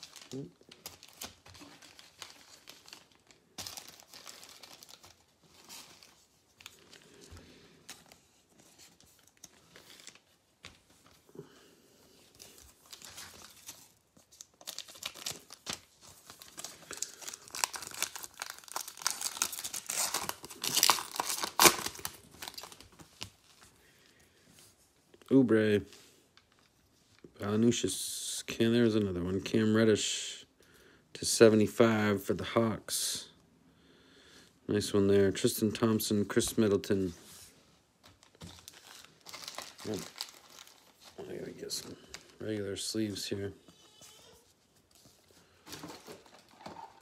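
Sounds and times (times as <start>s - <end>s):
wrapper tearing and crinkling: 0.0s - 6.9s, 12.8s - 23.6s, 38.2s - 42.3s, 45.7s - 47.0s.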